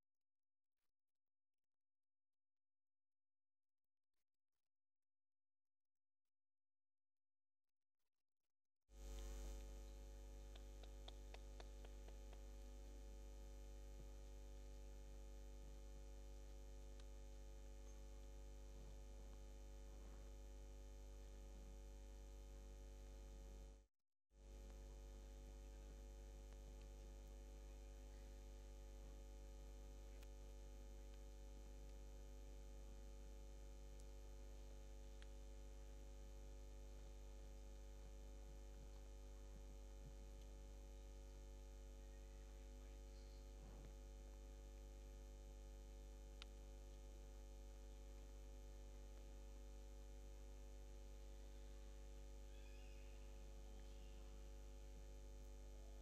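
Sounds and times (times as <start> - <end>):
electrical mains hum: 8.9 - 56.0
faint ticks: 9.0 - 13.1, 24.4 - 42.2.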